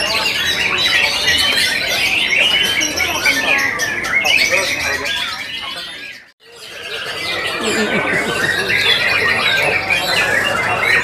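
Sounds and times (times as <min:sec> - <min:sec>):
caged birds singing: 0:00.0 - 0:11.0.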